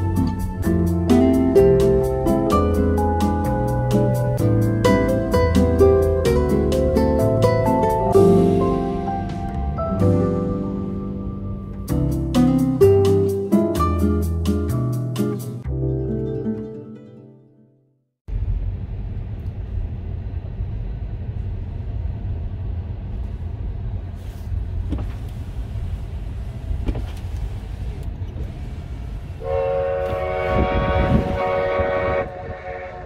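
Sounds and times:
car road rumble: 0:00.0 - 0:12.4, 0:18.3 - 0:33.0
steam locomotive chime whistle: 0:29.4 - 0:33.0.

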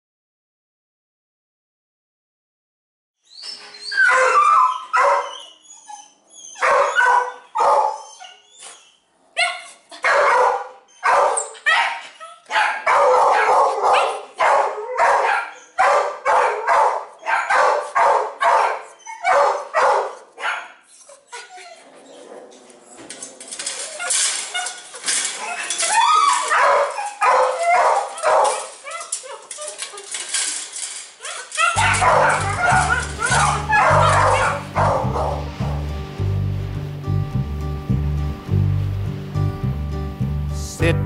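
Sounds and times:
dog barking and yelping: 0:03.7 - 0:35.9.

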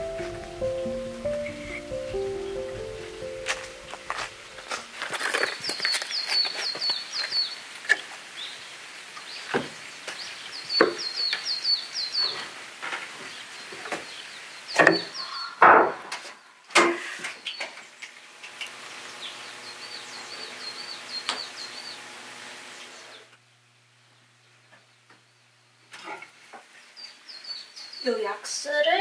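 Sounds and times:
songbird chirping: 0:00.0 - 0:07.7, 0:08.4 - 0:12.5, 0:13.2 - 0:15.6, 0:26.7 - 0:29.0.

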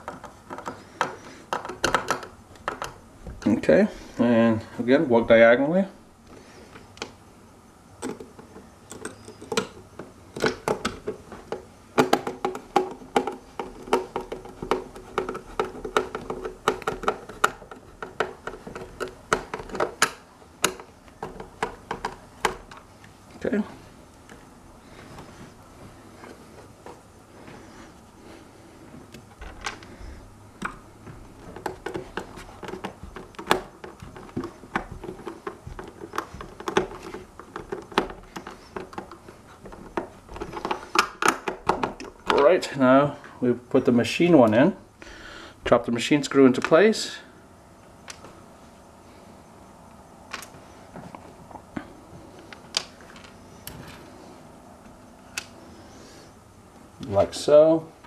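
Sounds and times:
hands handling plastic shell: 0:00.0 - 0:03.5, 0:08.0 - 0:23.2, 0:29.0 - 0:42.4.

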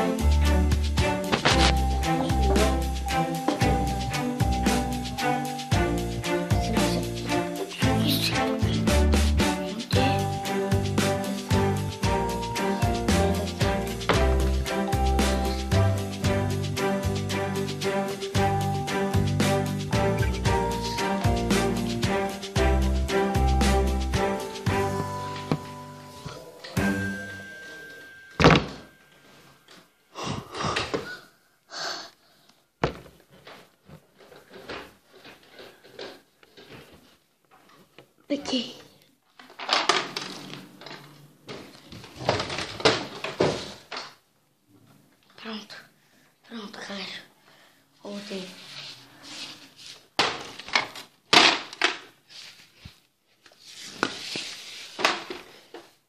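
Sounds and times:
objects knocking and rubbing: 0:01.2 - 0:01.8.

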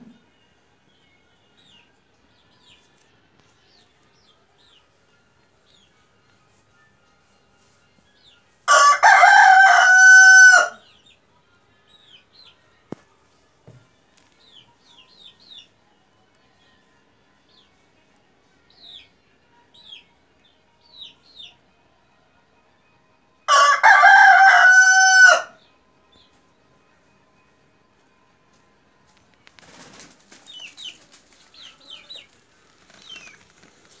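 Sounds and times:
rooster crowing: 0:08.7 - 0:10.8, 0:23.5 - 0:25.6
faint rustling: 0:29.4 - 0:34.0
chick peeping: 0:29.6 - 0:34.0.

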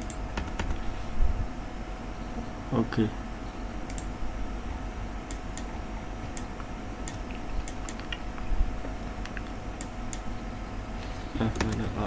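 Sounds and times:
computer mouse clicks: 0:00.0 - 0:00.8, 0:03.9 - 0:04.1, 0:06.3 - 0:08.5, 0:09.2 - 0:10.3
steady low hum: 0:00.0 - 0:12.0.

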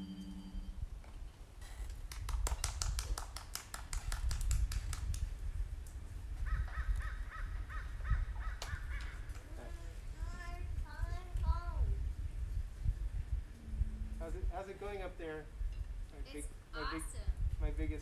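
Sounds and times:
low rumble: 0:11.7 - 0:15.6.

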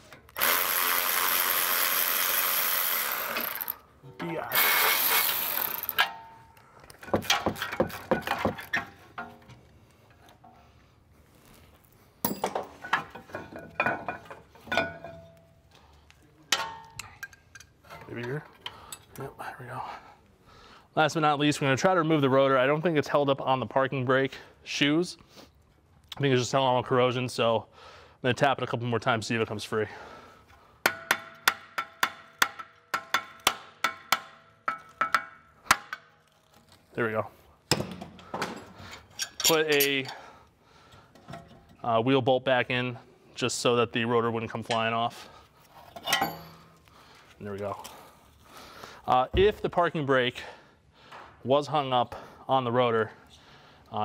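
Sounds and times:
short metallic ring: 0:46.0 - 0:46.8
metal clinks: 0:46.0 - 0:46.9.

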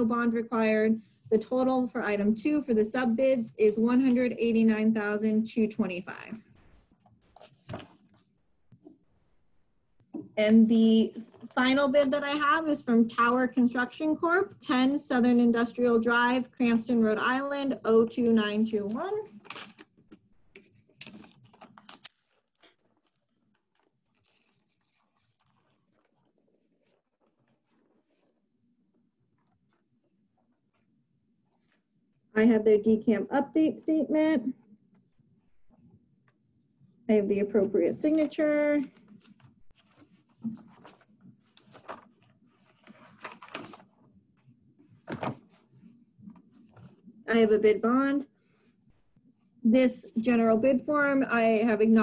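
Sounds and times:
paper rustling: 0:06.5 - 0:08.3, 0:18.8 - 0:30.9, 0:38.8 - 0:47.1.

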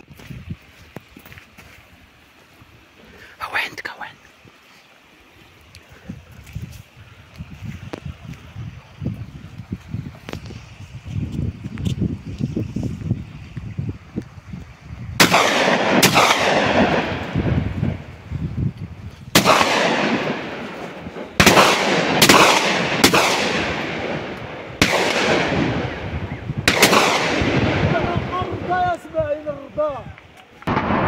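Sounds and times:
gunshots echoing: 0:15.2 - 0:18.0, 0:19.3 - 0:28.8, 0:30.7 - 0:31.0.

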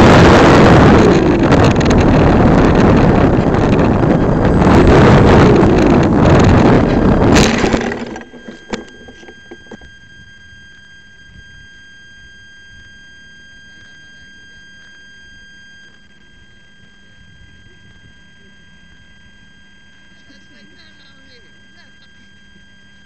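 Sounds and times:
wind rushing over microphone: 0:00.0 - 0:10.3
high-pitched whine: 0:00.0 - 0:23.0.

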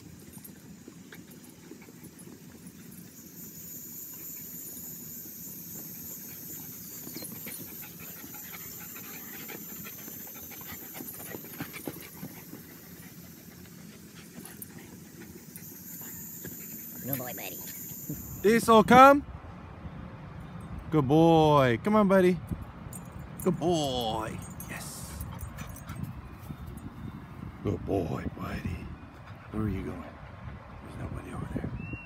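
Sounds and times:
dogs panting and scuffling: 0:00.0 - 0:18.5, 0:22.9 - 0:27.4, 0:29.1 - 0:31.1.

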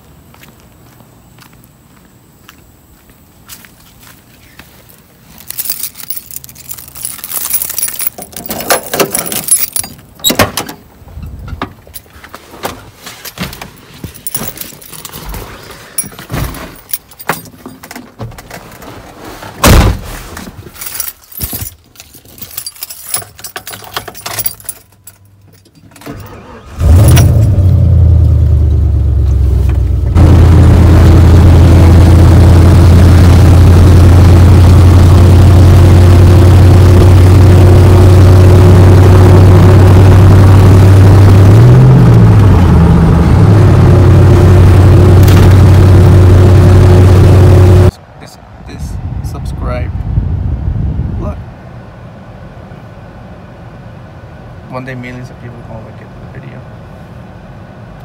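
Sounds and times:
keys jangling: 0:05.4 - 0:10.3, 0:13.2 - 0:15.3, 0:16.0 - 0:18.0, 0:20.7 - 0:26.3
clicks and rustling in cab: 0:05.4 - 0:27.4
car door opening: 0:08.1 - 0:10.8
car door shutting thump: 0:19.6 - 0:20.1
engine starting and running: 0:25.6 - 0:47.9.

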